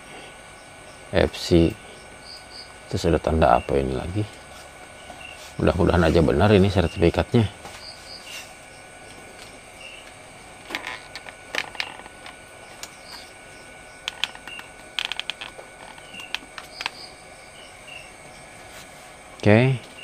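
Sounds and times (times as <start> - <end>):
insects chirping: 0.0 - 20.0
plastic case clicks and knocks: 14.0 - 17.0.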